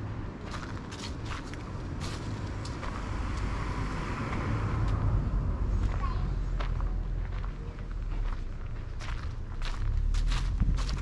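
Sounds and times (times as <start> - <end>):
footsteps on gravel: 0.4 - 3.2, 5.8 - 11.0
car driving past: 2.6 - 11.0.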